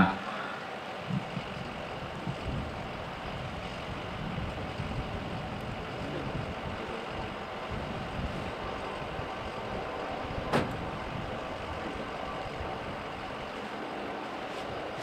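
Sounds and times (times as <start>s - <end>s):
low vehicle rumble: 0.0s - 15.0s.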